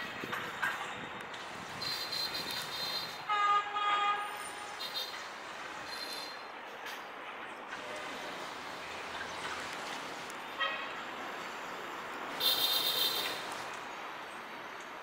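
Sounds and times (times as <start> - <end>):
street noise: 0.0 - 15.0
shrill vehicle horn: 1.8 - 5.2, 10.5 - 11.1, 12.4 - 13.5
short horn toot: 12.4 - 13.4.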